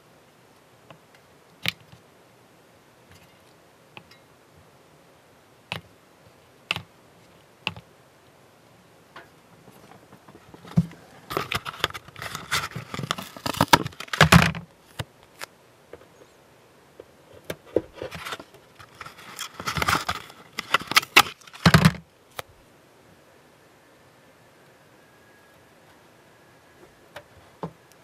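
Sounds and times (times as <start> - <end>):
plastic parts clattering and clicking: 10.4 - 15.5, 18.0 - 22.0.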